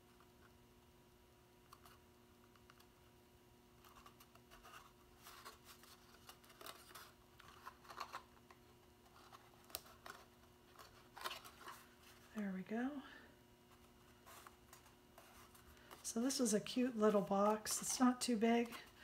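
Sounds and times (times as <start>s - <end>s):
faint steady hum: 0.0s - 19.0s
cardstock crinkling and tapping: 3.8s - 12.3s.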